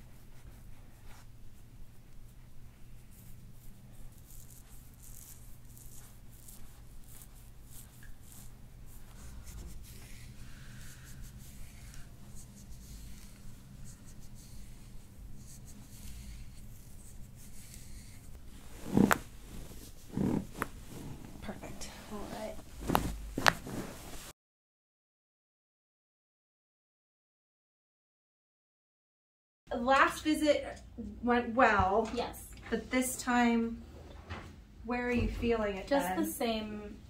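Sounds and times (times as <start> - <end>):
fingers rubbing through hair: 0.0 - 24.3
low steady hum: 0.0 - 24.3
loud back crack: 22.5 - 24.3
short thuds: 22.6 - 24.2.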